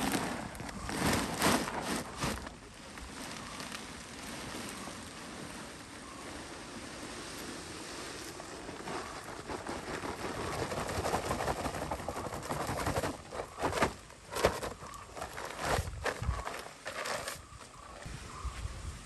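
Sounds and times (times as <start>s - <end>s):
peppercorns rustling and crackling: 0.0s - 7.6s.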